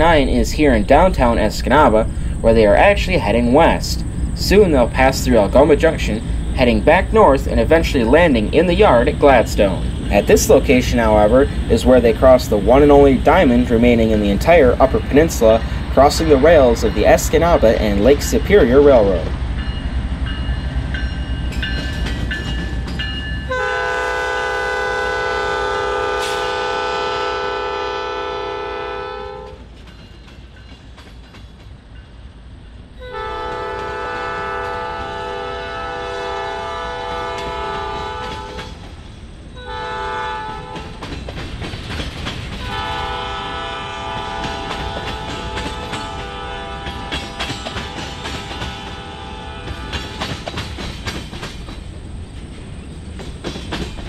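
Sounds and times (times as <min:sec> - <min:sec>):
train wheels clattering over rail joints: 0:00.0 - 0:23.6, 0:29.5 - 0:32.2, 0:33.4 - 0:39.3, 0:40.2 - 0:54.0
diesel engines rumbling: 0:00.0 - 0:30.5, 0:31.8 - 0:54.0
locomotive air horn: 0:23.5 - 0:29.6, 0:33.0 - 0:38.7, 0:39.6 - 0:41.0, 0:42.6 - 0:50.4.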